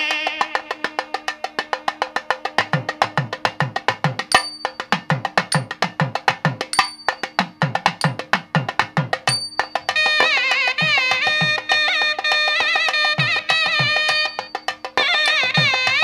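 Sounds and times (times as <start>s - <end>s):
wind instrument melody: 0.0s - 4.3s, 9.7s - 16.0s
fast hand drumming: 1.9s - 16.0s.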